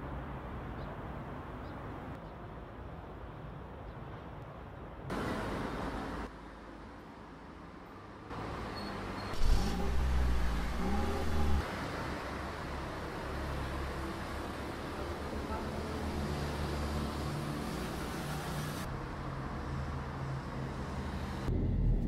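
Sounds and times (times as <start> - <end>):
street traffic: 0.0 - 22.0
vehicle engine revving: 9.4 - 11.6.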